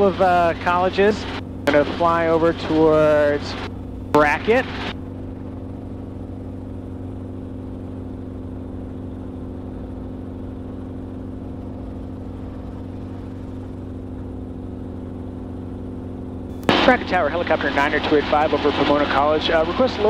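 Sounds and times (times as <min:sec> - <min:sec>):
helicopter engine and rotor hum: 0:00.0 - 0:20.0.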